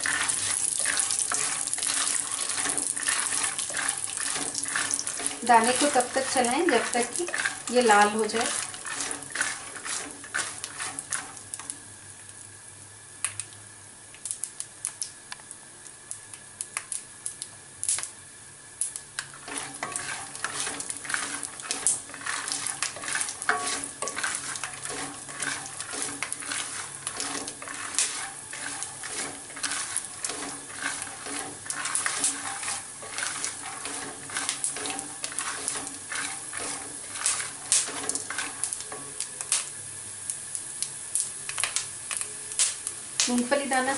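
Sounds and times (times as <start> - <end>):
spatula scraping pan: 0.0 - 11.4, 19.3 - 39.1
peanuts sizzling in oil: 0.0 - 43.9
sharp crackling clicks: 13.2 - 15.5, 38.6 - 43.4.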